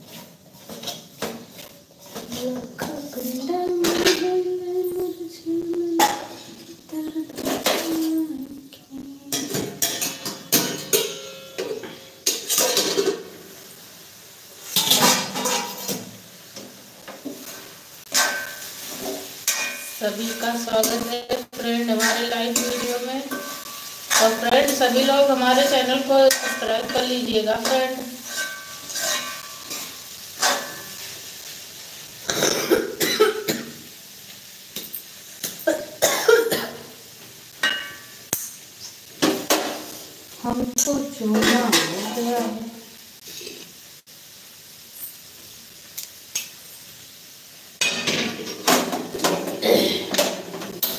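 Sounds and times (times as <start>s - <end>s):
pots and utensils clinking: 0.0s - 3.0s, 6.0s - 6.6s, 7.3s - 8.3s, 9.3s - 13.6s, 14.6s - 31.3s, 32.2s - 33.8s, 34.7s - 40.1s, 41.2s - 42.6s, 47.8s - 50.9s
spoon in metal pan: 9.3s - 13.4s, 14.7s - 31.1s, 37.6s - 38.6s, 41.3s - 42.5s, 47.8s - 49.6s
woman coughing: 32.3s - 33.7s, 35.7s - 36.8s, 49.6s - 50.1s.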